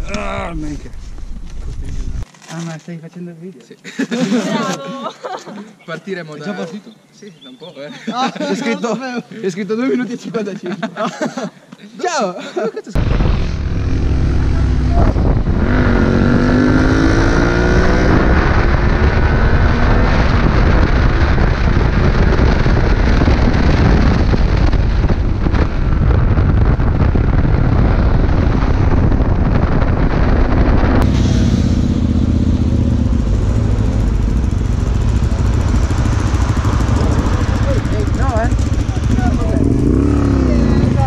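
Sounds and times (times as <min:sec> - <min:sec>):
wind rushing over microphone: 0:00.0 - 0:02.2, 0:13.0 - 0:41.0
motorcycle engine accelerating: 0:13.0 - 0:41.0.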